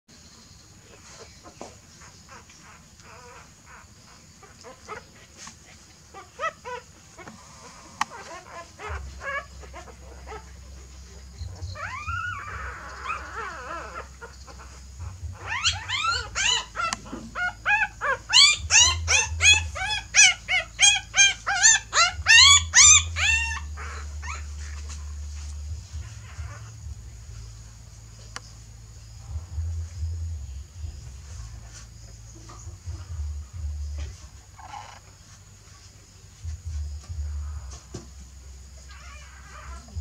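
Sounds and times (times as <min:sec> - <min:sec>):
puppies crying in high squeals: 0:02.0 - 0:05.2, 0:06.1 - 0:10.6, 0:11.4 - 0:26.8, 0:38.8 - 0:40.0.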